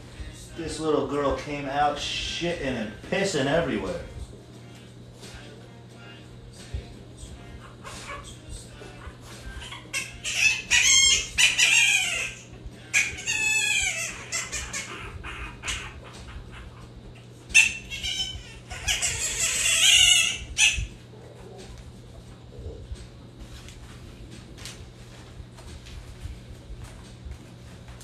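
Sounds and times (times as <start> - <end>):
puppies crying and squealing: 7.4 - 21.8.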